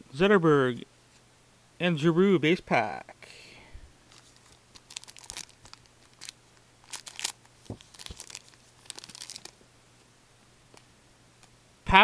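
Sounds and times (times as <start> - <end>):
cards being handled: 4.1 - 9.6
wrapper crinkling: 4.1 - 9.6.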